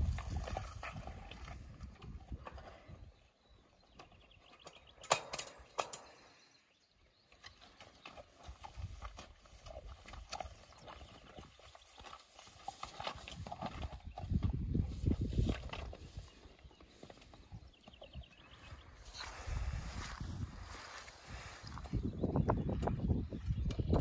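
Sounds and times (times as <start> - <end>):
hoof steps in grass: 0.0 - 2.9, 7.4 - 22.7.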